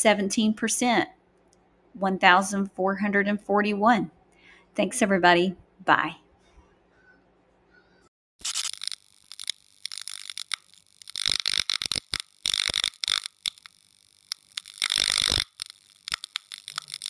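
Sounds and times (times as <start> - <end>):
electric crackling and sizzling: 8.4 - 17.0.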